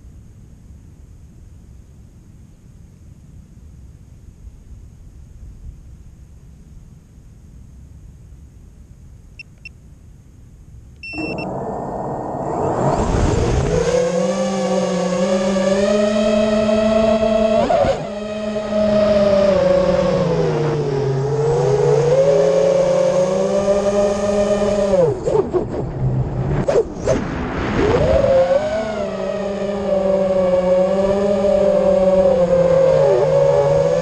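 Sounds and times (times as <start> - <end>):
electronic beeps: 11.0 - 13.2
drone motors buzzing whine: 11.0 - 26.6, 27.7 - 34.0.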